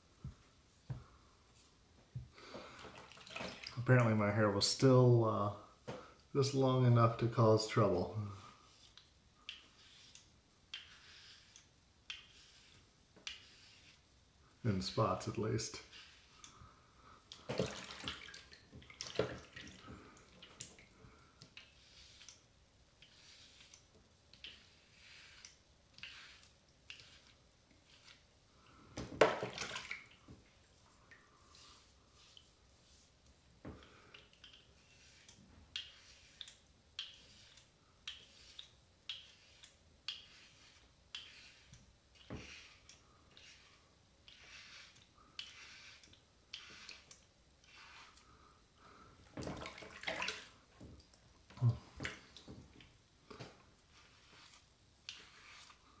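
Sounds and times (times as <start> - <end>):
razor scraping stubble: 6.6 - 14.0, 14.7 - 16.6, 21.5 - 28.2, 34.0 - 48.4, 53.8 - 56.0.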